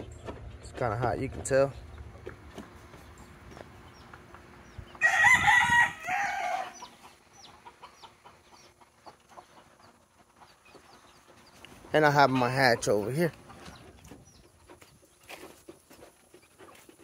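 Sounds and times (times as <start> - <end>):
rooster crowing: 5.0 - 6.9.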